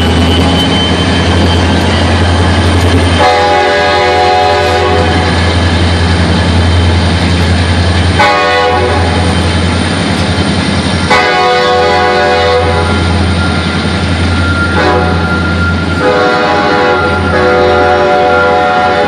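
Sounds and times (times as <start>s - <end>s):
diesel locomotive drone: 0.0s - 19.0s
locomotive air horn: 3.2s - 5.3s, 8.2s - 9.2s, 11.1s - 13.1s, 14.7s - 15.4s, 16.0s - 19.0s.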